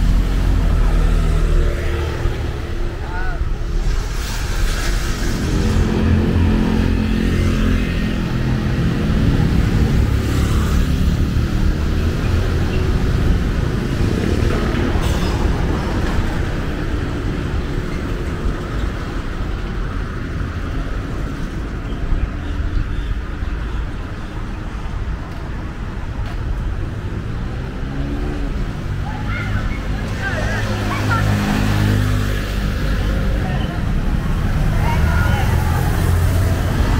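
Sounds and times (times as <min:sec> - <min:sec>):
motorbike passing close: 0:00.0 - 0:18.0
street traffic rumble: 0:00.0 - 0:36.9.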